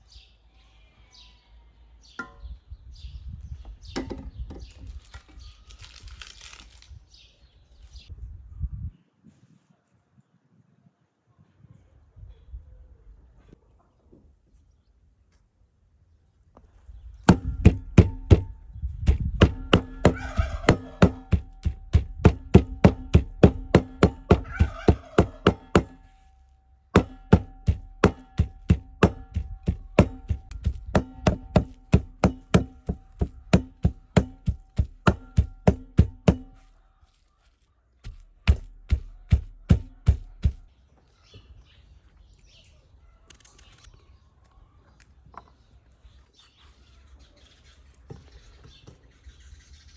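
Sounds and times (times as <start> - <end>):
cleaver chopping meat on wood: 17.3 - 26.1, 27.0 - 36.7, 38.0 - 40.7.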